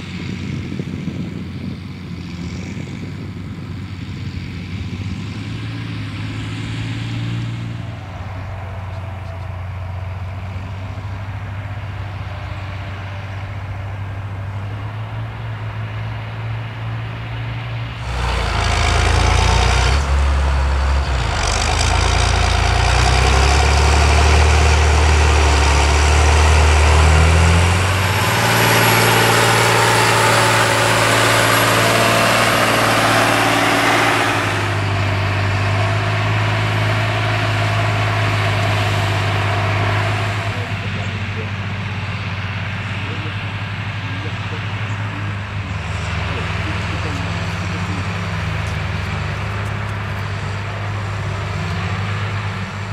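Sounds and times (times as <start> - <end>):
tractor diesel engine under load: 0.0 - 52.9.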